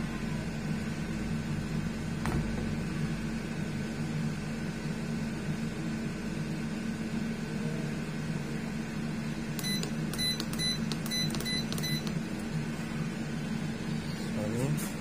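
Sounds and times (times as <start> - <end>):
low hum: 0.0 - 6.5.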